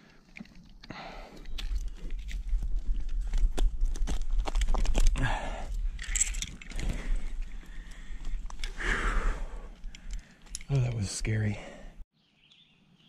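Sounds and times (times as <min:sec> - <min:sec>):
metal hardware clinking: 0:06.0 - 0:06.9.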